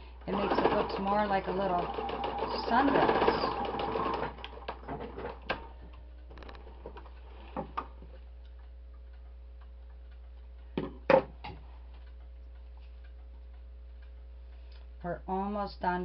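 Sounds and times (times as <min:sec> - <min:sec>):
faint steady hum: 0:00.0 - 0:16.0
sewing machine clicks and knocks: 0:00.3 - 0:05.7
soft even ticking: 0:05.6 - 0:10.8, 0:11.6 - 0:16.0.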